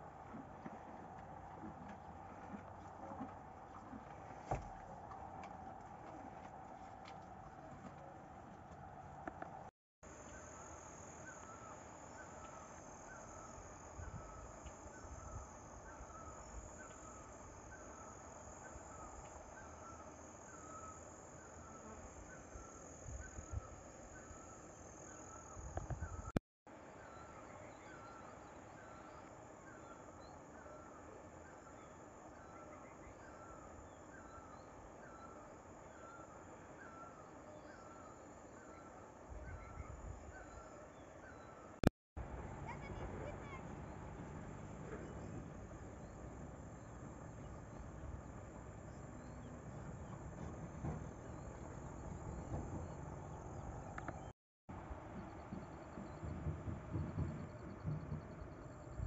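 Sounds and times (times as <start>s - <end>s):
high insect drone: 10.0s - 26.3s
bird calling: 10.2s - 26.3s, 27.0s - 41.8s.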